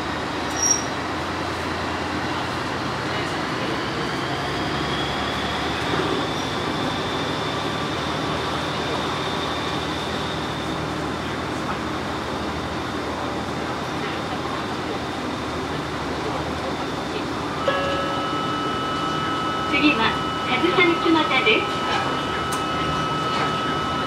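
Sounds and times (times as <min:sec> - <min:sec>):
railcar wheels rumbling on rails: 0:00.0 - 0:24.0
faint high whine: 0:17.5 - 0:24.0.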